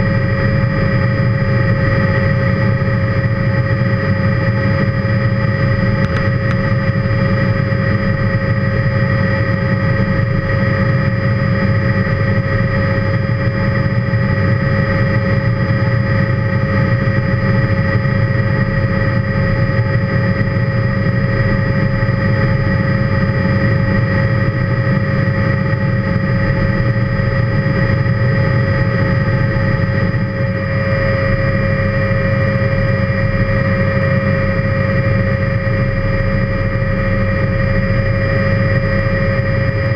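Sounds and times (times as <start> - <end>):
constant whining tones: 0.0 - 39.9
helicopter engine and rotor drone: 0.0 - 39.9.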